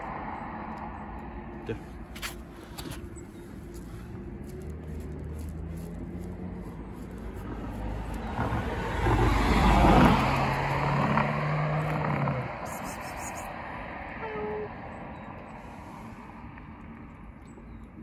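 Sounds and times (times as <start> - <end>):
vehicle passing by: 0.0 - 17.3.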